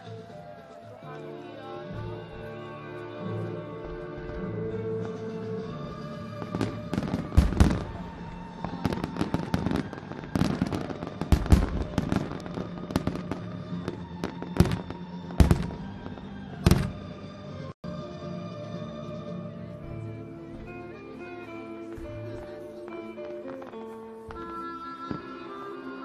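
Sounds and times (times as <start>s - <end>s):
music with held notes: 0.0s - 26.0s
fireworks bangs and pops: 3.7s - 17.3s.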